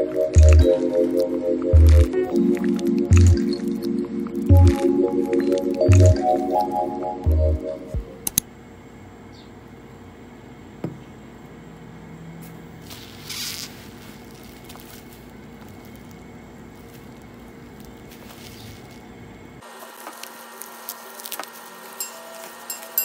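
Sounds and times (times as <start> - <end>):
short rustle: 12.8 - 19.1.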